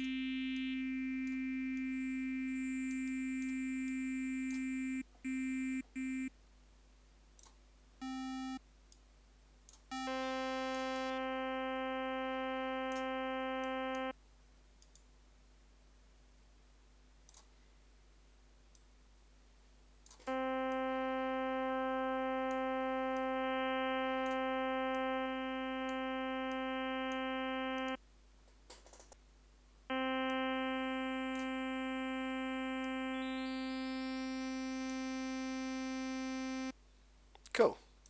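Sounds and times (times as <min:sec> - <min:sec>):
faint mouse clicks: 0:07.4 - 0:07.6, 0:14.8 - 0:15.1, 0:17.2 - 0:17.6
sustained synthesizer note: 0:20.3 - 0:28.0.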